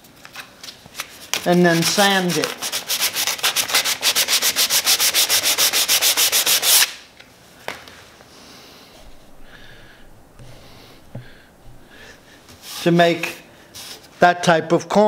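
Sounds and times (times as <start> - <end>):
sandpaper sanding wood: 1.5 - 6.9
faint knocks: 9.0 - 12.5.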